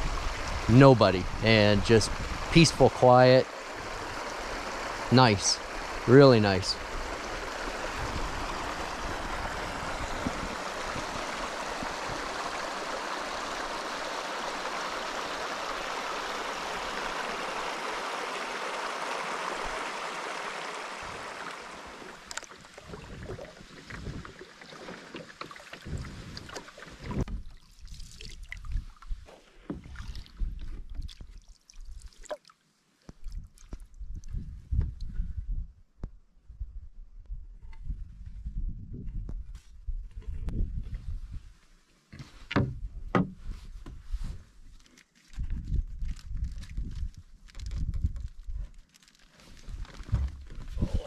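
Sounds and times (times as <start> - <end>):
water rushing through a gap: 0.0 - 28.9
paddle strokes and drips: 0.0 - 34.4, 42.1 - 45.5, 46.1 - 51.0
knocks against wooden canoe: 42.1 - 44.0, 50.0 - 50.7.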